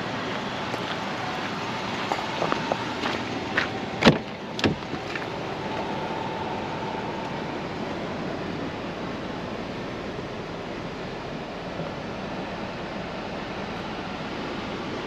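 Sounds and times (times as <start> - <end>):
car door latch clunk: 3.6 - 5.3.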